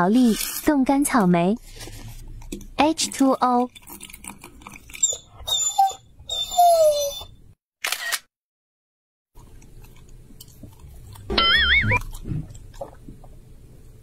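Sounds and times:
dog whining in high squeaks: 4.9s - 7.4s, 11.4s - 12.0s
camera shutter click: 7.8s - 8.3s
brief warbling tone: 11.3s - 12.0s.

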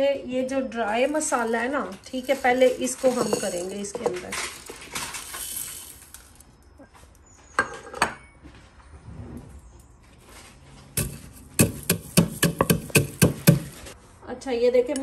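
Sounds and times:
wooden knocks: 11.0s - 13.8s
pestle pounding spices in mortar: 11.0s - 13.9s.

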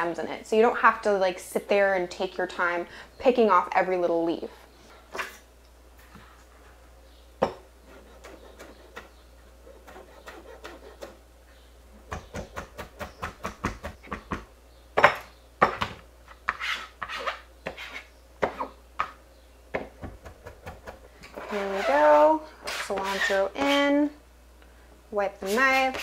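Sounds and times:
knife chopping on plastic board: 12.1s - 14.5s.

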